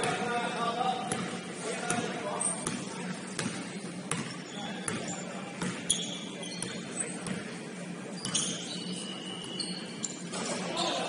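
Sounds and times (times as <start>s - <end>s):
sneaker squeaks: 1.0s - 11.0s
basketball bouncing on wooden floor: 3.4s - 4.3s.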